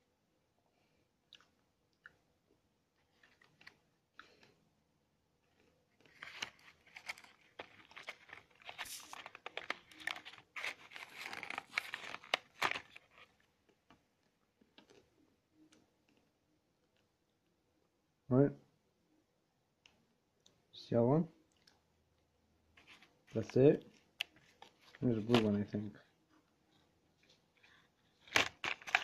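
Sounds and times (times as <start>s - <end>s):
person crunching candy: 6.0s - 13.4s, 27.2s - 29.0s.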